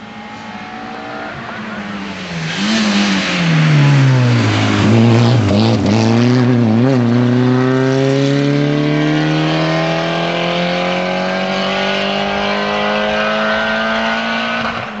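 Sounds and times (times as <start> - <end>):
rally car engine accelerating: 0.0 - 15.0.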